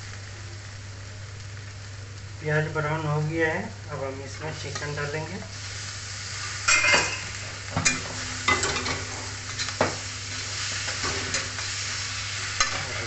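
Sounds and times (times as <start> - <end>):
chicken sizzling in hot oil: 0.0 - 13.0
metal spatula scraping a pan: 6.6 - 9.7, 10.4 - 13.0.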